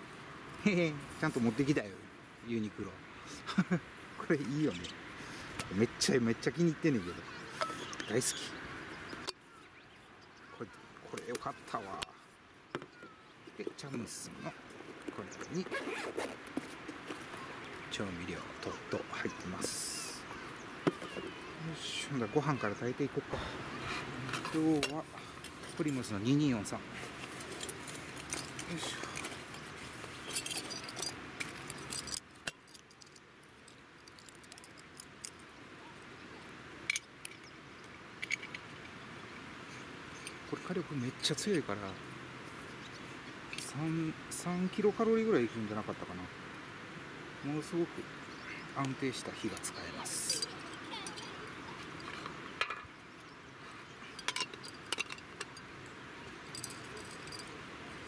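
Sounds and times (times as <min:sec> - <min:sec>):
fabric pouch rustling: 0:14.8 - 0:17.6
small metal clicks and clinks: 0:27.5 - 0:29.6, 0:30.2 - 0:35.5, 0:36.9 - 0:37.5, 0:38.2 - 0:38.6, 0:49.6 - 0:53.4, 0:54.0 - 0:55.7, 0:56.5 - 0:58.0.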